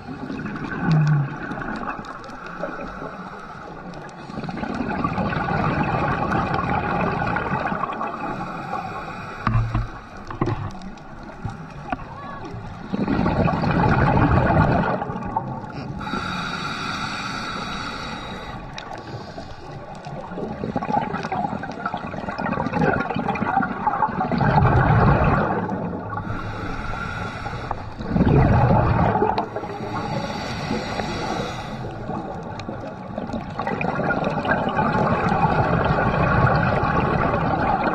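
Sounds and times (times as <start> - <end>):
gurgling exhaled bubbles: 0.0 - 16.8, 17.4 - 37.9
regulator inhalation hissing: 16.0 - 19.7, 26.2 - 28.1, 29.3 - 32.2.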